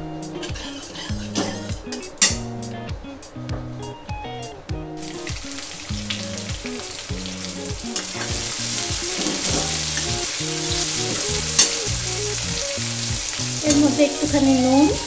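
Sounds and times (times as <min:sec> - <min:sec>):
background music: 0:00.0 - 0:15.0
onions sizzling in hot oil: 0:05.0 - 0:15.0.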